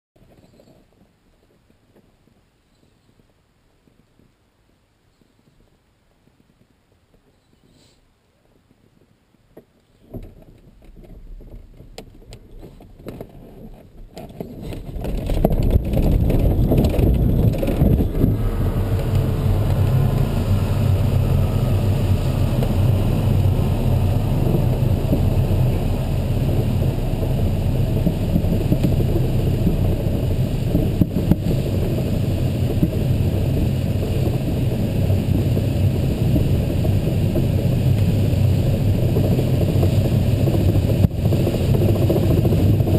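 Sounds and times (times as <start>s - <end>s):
knocks and rattles: 9.6s - 20.3s
low rumble: 14.6s - 42.9s
rush of air: 14.6s - 42.9s.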